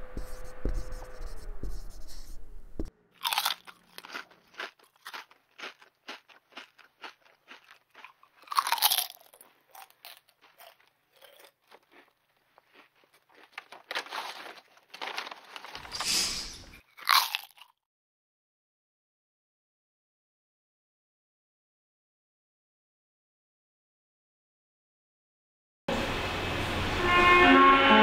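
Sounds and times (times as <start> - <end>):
crunching crackles and clicks: 3.2 - 16.0.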